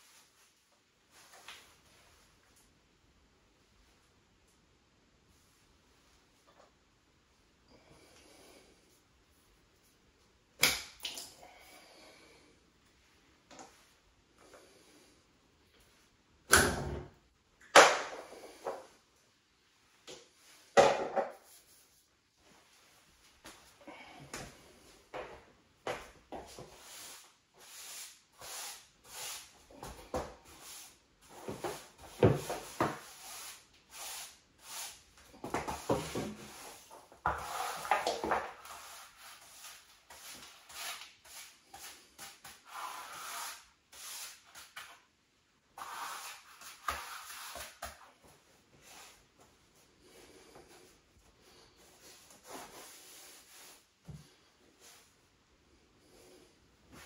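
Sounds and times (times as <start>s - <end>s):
brush sweeping sawdust: 26.7s - 29.6s, 32.5s - 35.1s.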